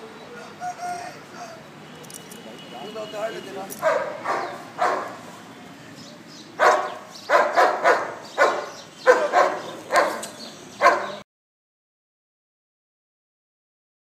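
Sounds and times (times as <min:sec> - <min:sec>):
dog barking: 0:03.8 - 0:05.2, 0:06.6 - 0:11.2.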